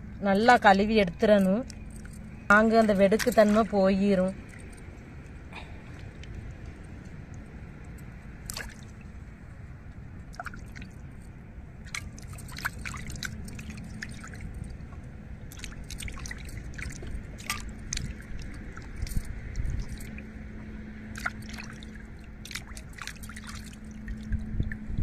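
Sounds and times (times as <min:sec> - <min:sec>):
water drips: 0:09.9 - 0:25.0
hands splashing water in metal bowl: 0:15.5 - 0:20.2, 0:21.1 - 0:24.0.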